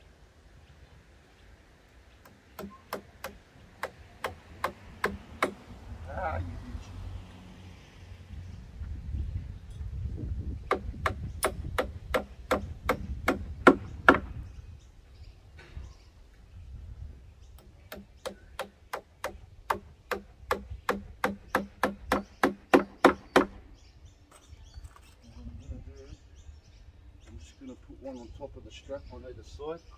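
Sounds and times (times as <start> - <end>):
hammer nailing into wood: 2.2 - 5.6, 10.7 - 14.3, 17.9 - 23.6.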